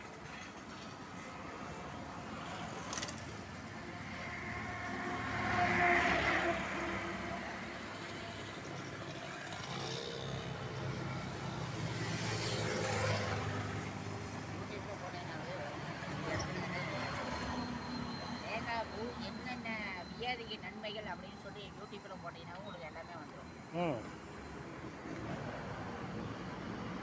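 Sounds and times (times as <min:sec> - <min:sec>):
road traffic: 0:00.0 - 0:27.0.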